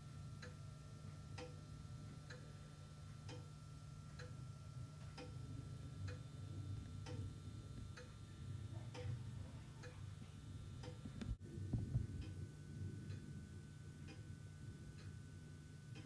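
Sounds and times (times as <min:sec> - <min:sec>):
low steady hum: 0:00.0 - 0:16.0
faint regular tick: 0:03.1 - 0:04.4, 0:09.8 - 0:12.4.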